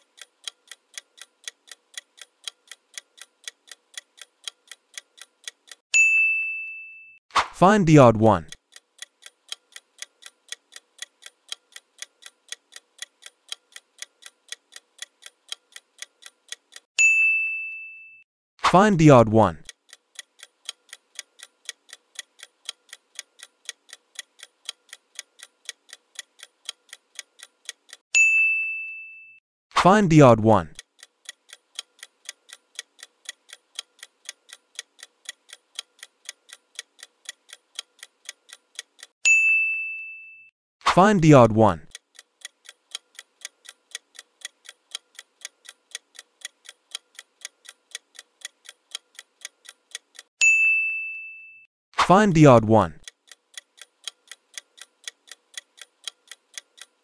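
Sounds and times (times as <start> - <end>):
clock ticking: 0.0 - 5.8, 8.0 - 16.9, 19.0 - 28.0, 30.0 - 39.2, 41.0 - 50.3, 52.1 - 57.0
bell ding: 6.0 - 7.2, 17.0 - 18.2, 28.2 - 29.4, 39.3 - 40.5, 50.4 - 51.7.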